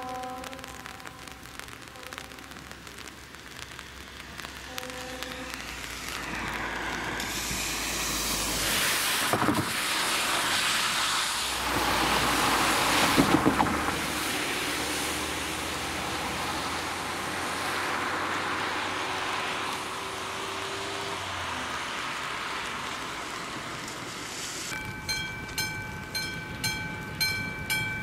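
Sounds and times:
car tyres hissing through water: 0.0s - 24.8s
thumps of cars crossing: 13.1s - 13.9s.

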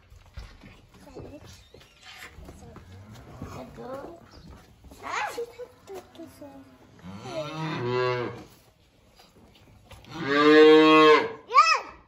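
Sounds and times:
calves mooing: 7.0s - 8.5s, 10.0s - 11.4s.

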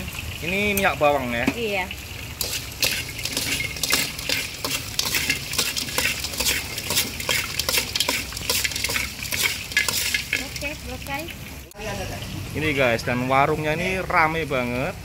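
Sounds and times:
metal spatula scraping a wok: 2.4s - 10.8s.

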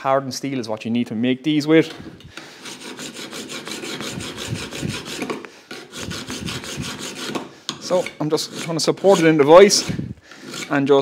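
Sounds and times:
hand file filing steel edge: 2.4s - 11.0s.

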